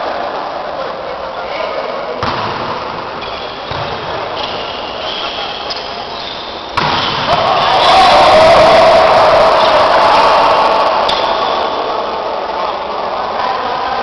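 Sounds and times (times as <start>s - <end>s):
crowd chatter: 0.0s - 14.0s
ball thud: 2.2s - 2.8s, 6.7s - 7.4s
volleyball being hit: 2.2s - 4.6s, 6.7s - 7.6s
crowd shouting: 3.1s - 13.7s.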